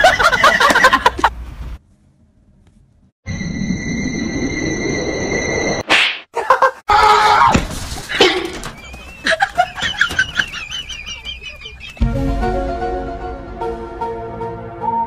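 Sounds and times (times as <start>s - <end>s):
background music: 11.9s - 15.0s.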